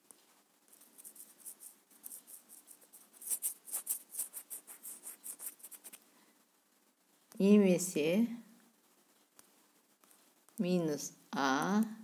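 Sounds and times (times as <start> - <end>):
finger rubbing on touchscreen: 0.7 - 6.0.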